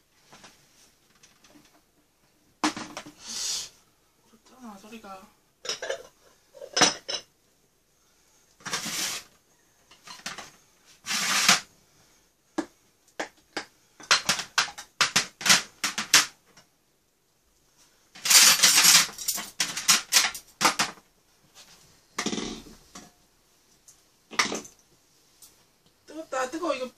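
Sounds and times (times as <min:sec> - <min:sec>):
plastic lids and dishes clattering: 0:02.6 - 0:03.2, 0:05.6 - 0:07.3, 0:08.6 - 0:09.2, 0:09.9 - 0:11.7, 0:12.6 - 0:16.7, 0:18.2 - 0:21.1.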